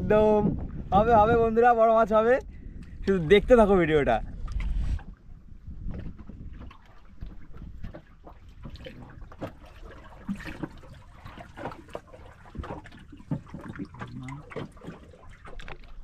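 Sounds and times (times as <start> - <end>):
water splashing and trickling: 0.0 - 16.0
small knocks and drips: 4.4 - 16.0.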